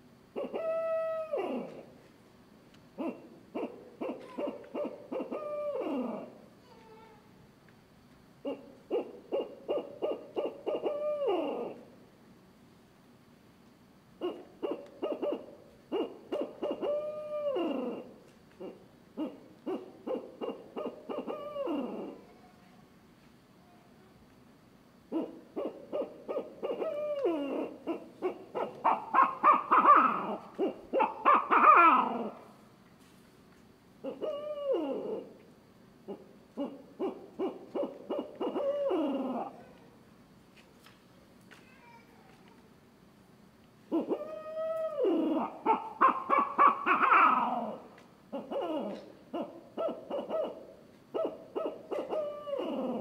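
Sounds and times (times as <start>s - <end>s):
owl hooter call hoots: 0.3s - 2.0s, 3.0s - 6.4s, 8.4s - 11.9s, 14.2s - 22.3s, 25.1s - 32.6s, 34.0s - 35.4s, 36.0s - 39.7s, 43.9s - 53.0s.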